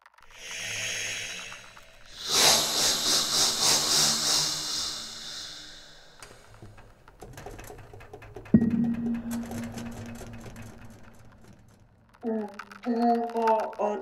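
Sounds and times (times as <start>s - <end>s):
pulsing rush of air: 0.3s - 6.5s, 8.6s - 10.9s
breathy flute air hiss: 0.4s - 6.4s
faint low tone: 8.6s - 10.0s.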